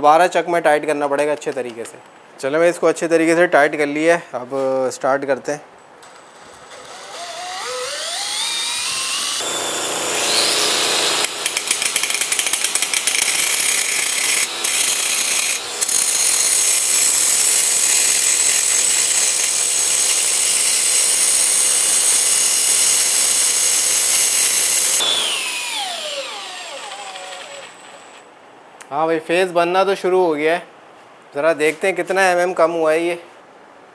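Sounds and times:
cordless drill spinning: 0:06.5 - 0:28.2
angle grinder grinding steel: 0:06.6 - 0:28.2.

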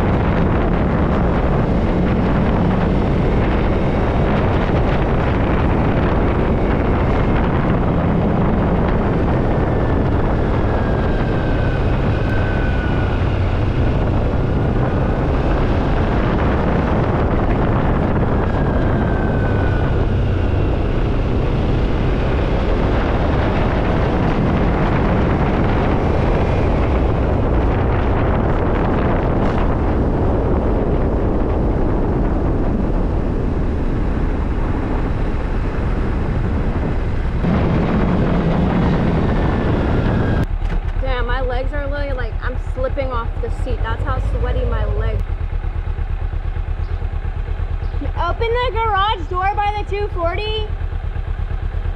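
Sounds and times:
motorcycle engine running: 0:00.0 - 0:51.9
wind rush on microphone: 0:00.0 - 0:51.9.

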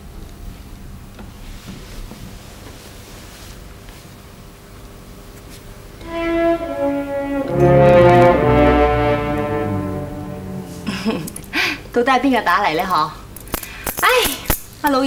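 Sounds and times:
low bass notes: 0:06.0 - 0:11.6
orchestral strings and brass: 0:06.0 - 0:11.7.

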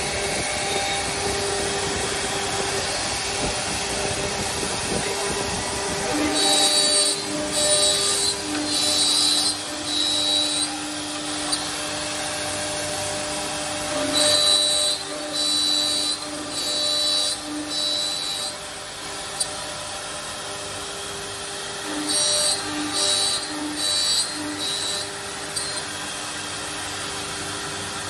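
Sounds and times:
high whine of cutting wood: 0:00.0 - 0:28.0
router spindles humming: 0:00.0 - 0:28.0.

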